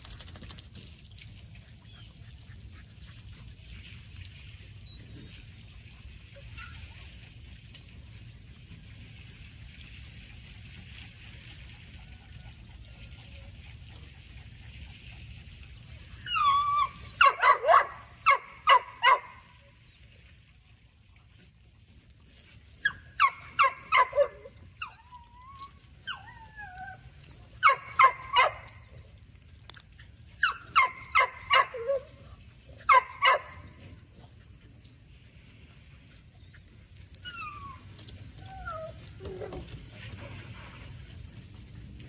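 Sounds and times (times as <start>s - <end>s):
dog whining: 16.1s - 17.1s, 22.8s - 28.7s, 37.0s - 39.8s
dog barking: 17.2s - 19.4s, 32.9s - 33.6s.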